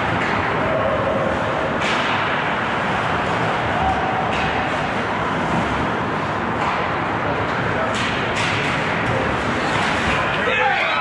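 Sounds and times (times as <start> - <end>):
arena noise: 0.0 - 11.0.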